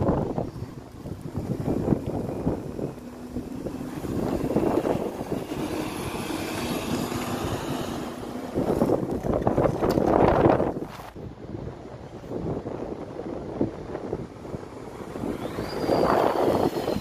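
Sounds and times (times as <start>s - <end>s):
wind buffeting microphone: 0.0s - 17.0s
bus engine driving past: 0.2s - 9.6s
faint high whine: 15.2s - 17.0s.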